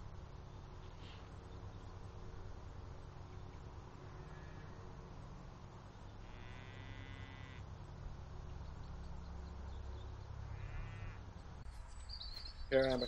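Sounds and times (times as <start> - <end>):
faint sheep bleats: 6.2 - 7.6, 10.5 - 11.2.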